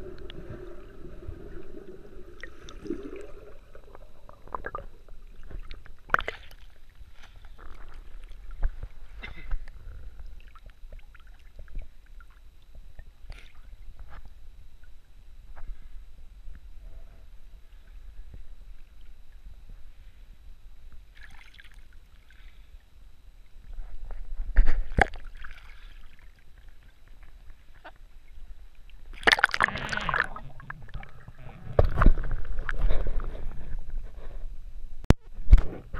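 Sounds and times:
underwater gurgling: 0.0s - 15.2s, 21.0s - 34.1s
water sloshing and splashing: 21.2s - 22.4s, 25.0s - 27.9s, 29.1s - 33.2s.

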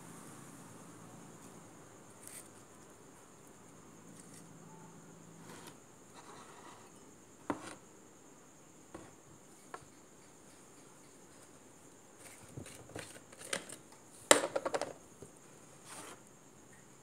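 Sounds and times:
faint high hiss: 0.0s - 12.6s.

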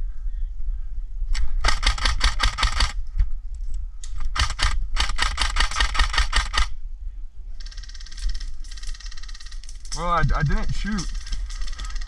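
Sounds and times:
airsoft rifle rapid fire: 1.6s - 3.0s, 4.3s - 6.7s.

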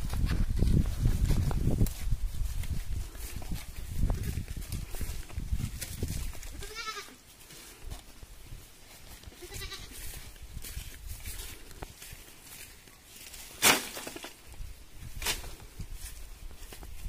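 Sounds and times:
footsteps on grass: 0.0s - 17.0s.

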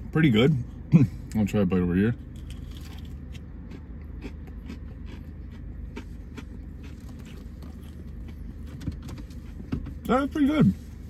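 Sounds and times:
low car cabin hum: 0.0s - 11.0s
chewing crispy food: 2.3s - 8.7s.

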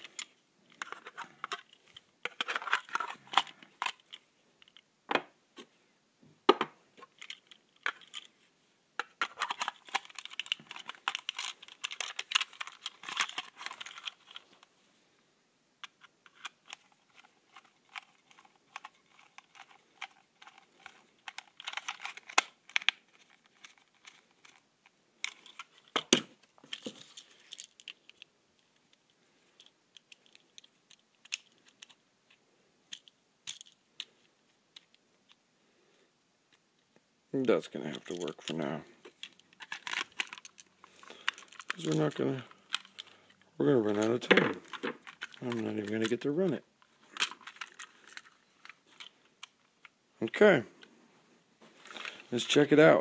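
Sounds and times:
plastic toy parts rattling: 0.0s - 4.8s, 7.0s - 8.4s, 9.0s - 14.7s, 15.8s - 29.0s, 29.6s - 35.0s, 37.5s - 49.9s.

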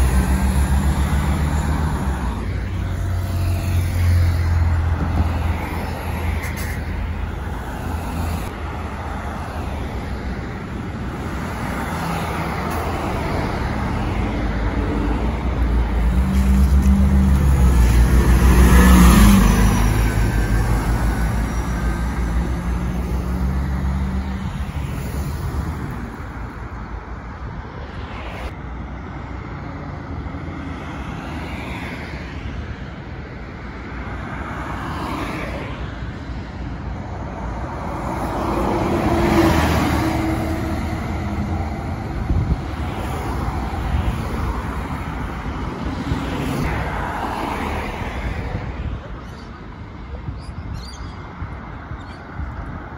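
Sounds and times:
bus engine humming: 0.0s - 30.5s, 36.7s - 46.7s
cars passing: 0.0s - 52.9s.

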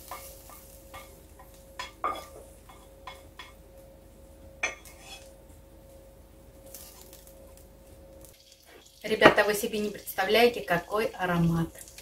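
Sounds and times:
spatula scraping a frying pan: 4.7s - 5.3s.

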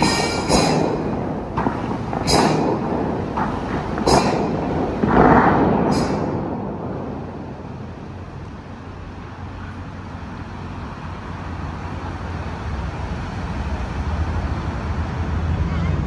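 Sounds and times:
vehicle rumble and rushing: 0.0s - 16.0s.

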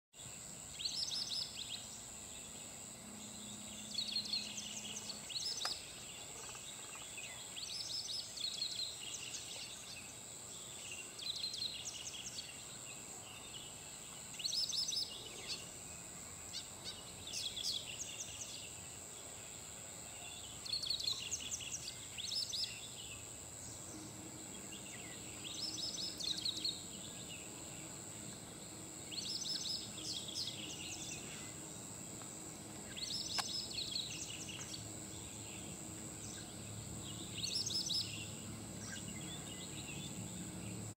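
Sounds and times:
wagtail singing: 32.8s - 40.9s.

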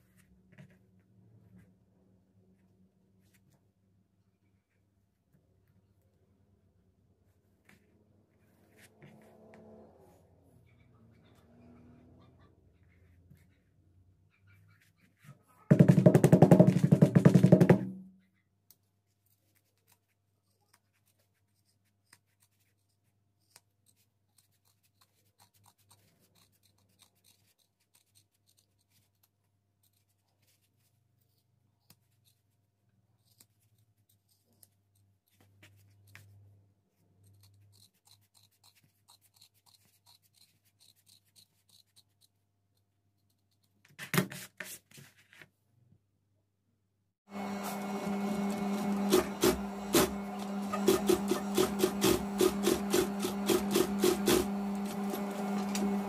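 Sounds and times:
shears snipping leather: 37.3s - 42.3s, 47.6s - 56.0s.

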